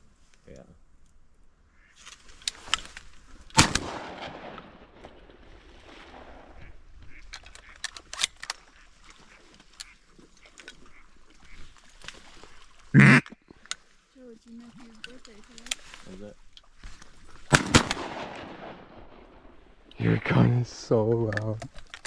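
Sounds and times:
shotgun shot with echo: 0:03.6 - 0:05.0, 0:17.5 - 0:19.5
ducks calling: 0:06.3 - 0:13.6.

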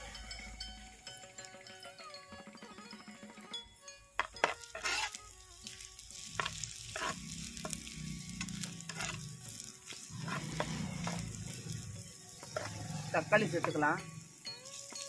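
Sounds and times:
onions sizzling in hot oil: 0:00.0 - 0:02.0, 0:03.8 - 0:15.0
metal spoon scraping a pot: 0:04.2 - 0:13.8.

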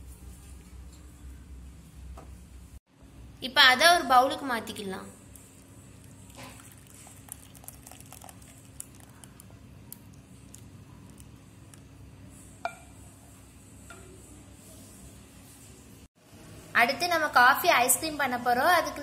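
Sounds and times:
thick liquid pouring and squelching: 0:05.9 - 0:11.4
glass bowl clink: 0:12.6 - 0:13.0.

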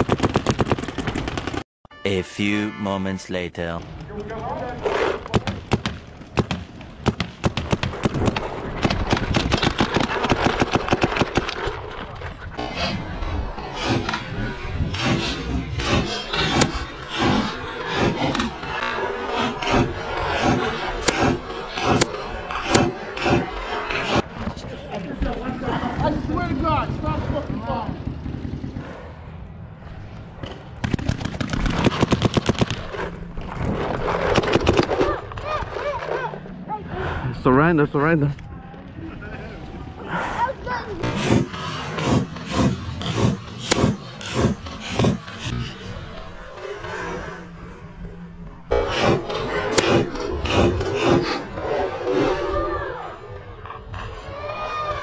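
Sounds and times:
paintball markers rapid firing: 0:00.0 - 0:01.6, 0:30.8 - 0:33.1, 0:34.1 - 0:35.0, 0:41.0 - 0:45.6.

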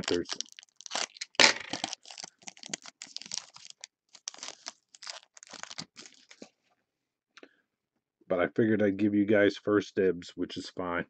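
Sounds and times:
foil wrapper crinkling and tearing: 0:00.0 - 0:06.5.

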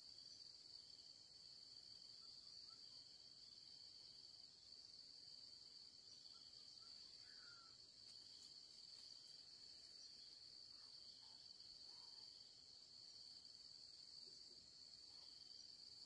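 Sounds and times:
insects droning: 0:00.0 - 0:16.0
faint bird chirps: 0:02.1 - 0:03.3, 0:06.0 - 0:08.4.

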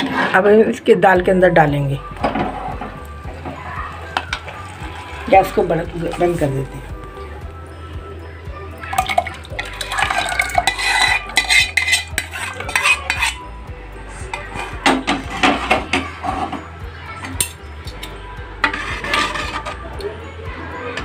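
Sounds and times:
metal spoon scraping cookware: 0:00.0 - 0:00.5, 0:09.0 - 0:13.5, 0:14.2 - 0:16.6, 0:17.2 - 0:19.9.

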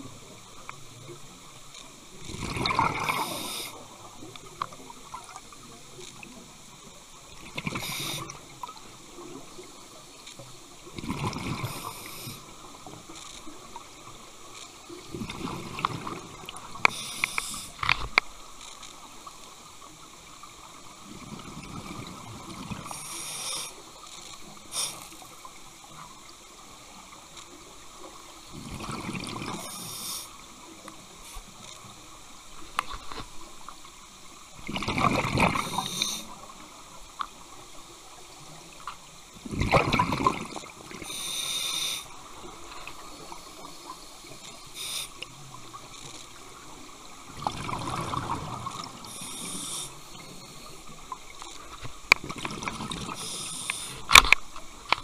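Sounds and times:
exhaled bubbles underwater: 0:02.2 - 0:05.5, 0:10.9 - 0:12.6, 0:28.5 - 0:29.8, 0:34.6 - 0:36.5, 0:39.4 - 0:41.1, 0:46.7 - 0:51.2, 0:52.2 - 0:54.0
regulator hissing inhalations: 0:03.0 - 0:03.8, 0:07.7 - 0:08.4, 0:11.6 - 0:12.5, 0:16.8 - 0:17.8, 0:22.8 - 0:23.8, 0:24.7 - 0:25.3, 0:29.6 - 0:30.4, 0:35.6 - 0:36.3, 0:41.0 - 0:42.1, 0:43.2 - 0:45.2, 0:49.0 - 0:50.7, 0:53.1 - 0:54.1.

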